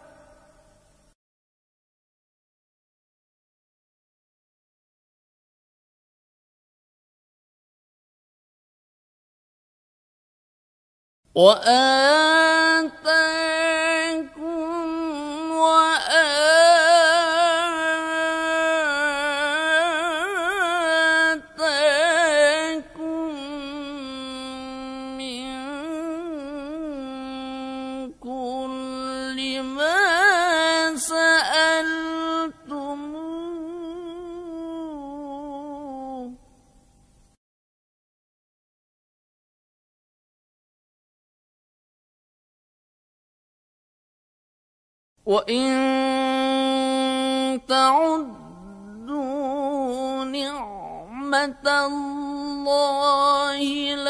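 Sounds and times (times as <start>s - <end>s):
man reciting melodic chant: 11.3s - 36.4s, 45.3s - 54.0s.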